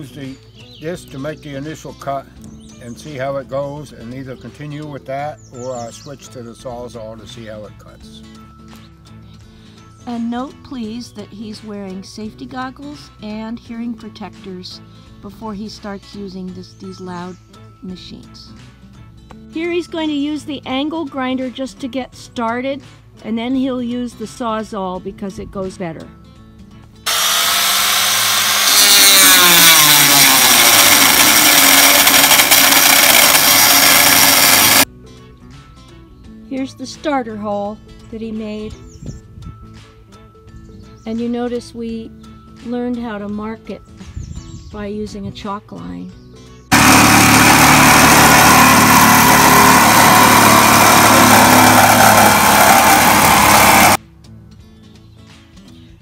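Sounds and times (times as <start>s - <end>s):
angle grinder cutting steel: 27.1s - 34.9s, 46.7s - 54.0s.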